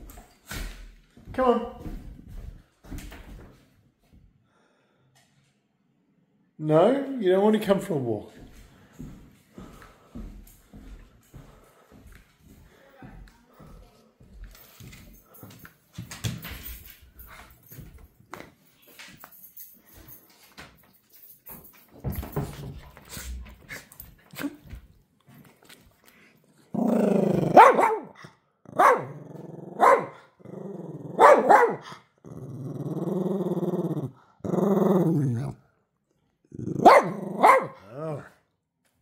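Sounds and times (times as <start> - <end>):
dog growling: 26.6 - 35.7, 36.4 - 38.4
dog woofing: 26.8 - 31.9, 36.7 - 38.3.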